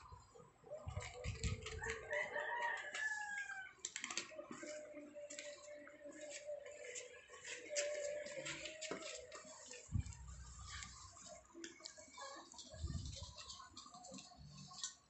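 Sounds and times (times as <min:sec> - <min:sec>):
rooster crowing: 0:01.8 - 0:03.8.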